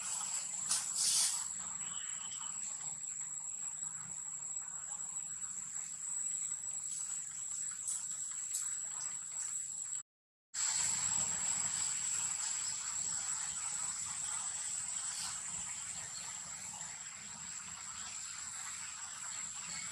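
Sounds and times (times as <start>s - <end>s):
high-pitched insect drone: 0.1s - 10.0s.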